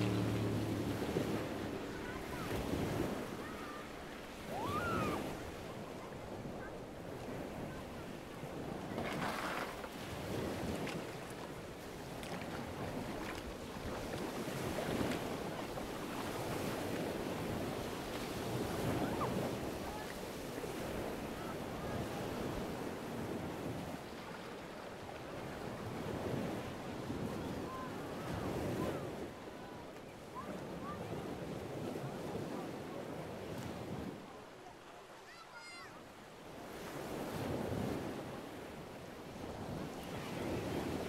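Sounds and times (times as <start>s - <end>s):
wind noise on microphone: 0.0s - 24.1s, 25.4s - 29.7s
small waves lapping: 0.0s - 41.0s.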